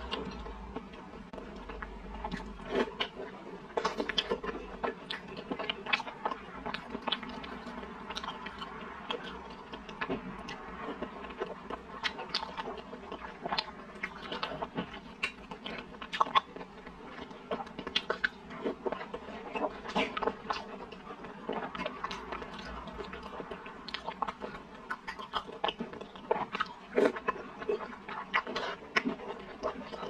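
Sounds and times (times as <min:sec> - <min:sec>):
person chewing: 0:00.0 - 0:30.0.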